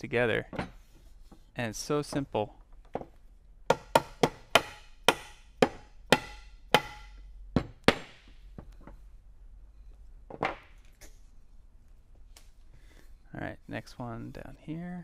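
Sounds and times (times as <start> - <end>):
mallet knocking on wood: 3.7 - 8.2.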